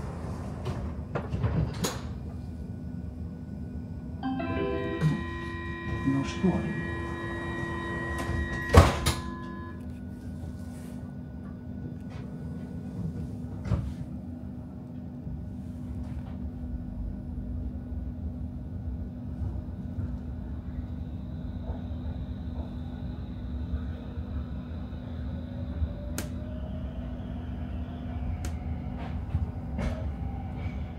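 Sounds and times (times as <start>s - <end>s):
train car rumble and hum: 0.0s - 30.9s
traction motor whine: 4.3s - 9.9s.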